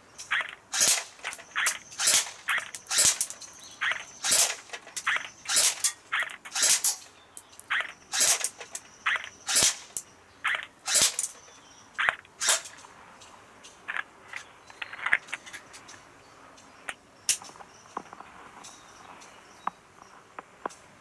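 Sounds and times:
bb cracking on metal target: 0:00.7 - 0:03.4, 0:04.2 - 0:07.1, 0:09.5 - 0:10.0, 0:10.9 - 0:11.4
airsoft pistol shot snap: 0:00.8 - 0:03.3, 0:06.5 - 0:07.0, 0:09.5 - 0:10.0.

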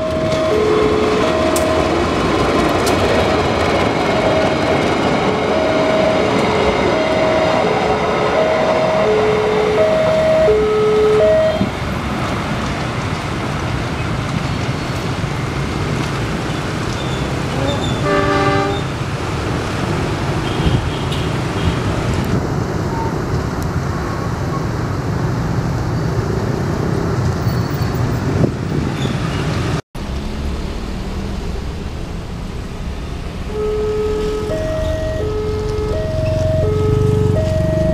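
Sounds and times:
two-tone level crossing alarm: 0:00.0 - 0:02.8, 0:03.8 - 0:11.7, 0:33.4 - 0:37.9
train horn blast: 0:00.0 - 0:03.2, 0:18.0 - 0:18.9, 0:33.4 - 0:36.0
freight train rumbling past: 0:00.0 - 0:27.2, 0:28.0 - 0:37.9.

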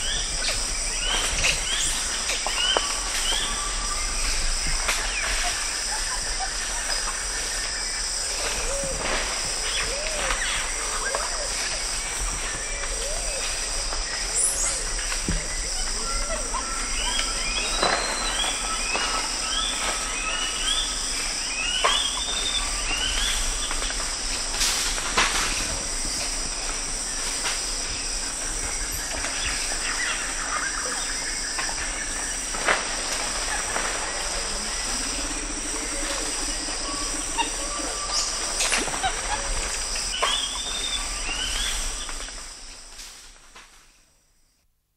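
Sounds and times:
foliage crackles and rustles: 0:00.0 - 0:44.0
high insect drone: 0:00.0 - 0:44.5
birds whistling and calling: 0:14.3 - 0:20.9.

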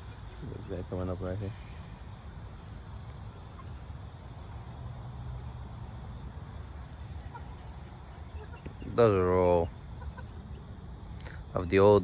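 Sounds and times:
high bird chirps: 0:01.5 - 0:11.4.

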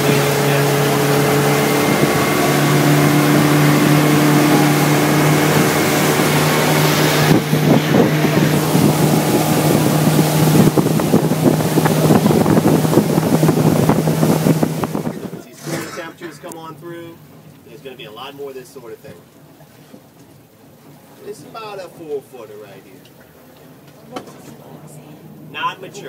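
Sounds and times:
wind buffeting microphone: 0:00.0 - 0:17.5
boat motor droning: 0:00.0 - 0:17.6
rushing water: 0:00.0 - 0:23.9.

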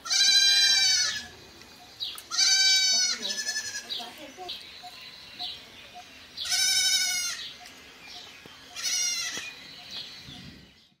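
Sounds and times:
goat bleating: 0:00.0 - 0:01.3, 0:02.3 - 0:04.1, 0:06.4 - 0:07.4, 0:08.7 - 0:09.5.

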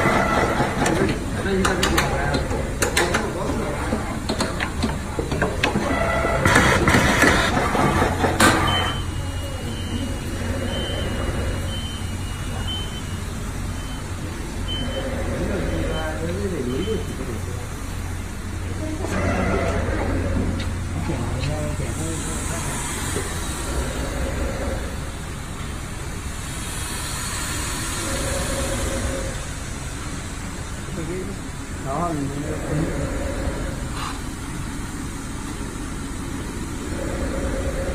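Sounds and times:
machine low hum: 0:00.0 - 0:37.9
machine noise burst: 0:21.8 - 0:30.4.

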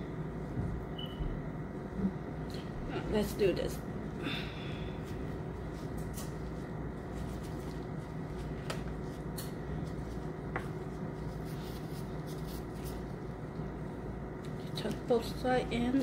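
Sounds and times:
steady low hum: 0:00.0 - 0:16.0
rice paper rustling: 0:05.7 - 0:13.3.

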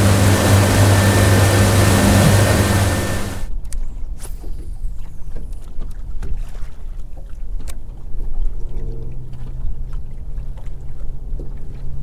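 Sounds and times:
steady low hum: 0:00.0 - 0:03.5
wind rumbling on microphone: 0:00.0 - 0:06.3
water lapping against boat hull: 0:00.0 - 0:12.0
splashes: 0:05.6 - 0:12.0.

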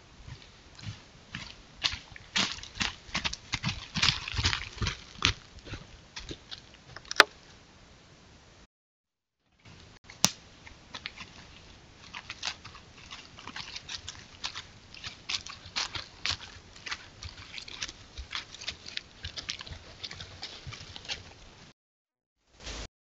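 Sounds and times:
deer footsteps in dry leaves: 0:00.2 - 0:07.6, 0:09.7 - 0:21.7
small animal foraging in leaves: 0:00.3 - 0:07.6, 0:09.5 - 0:21.7.

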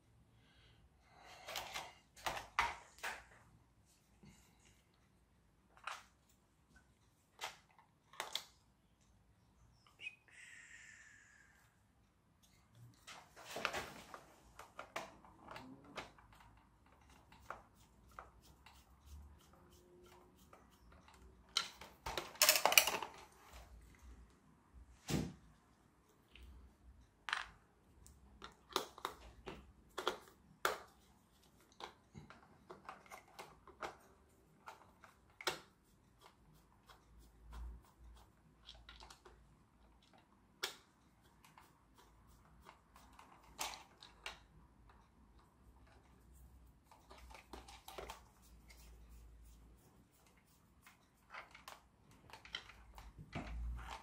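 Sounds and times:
plastic parts and screws clicking: 0:20.7 - 0:23.3.

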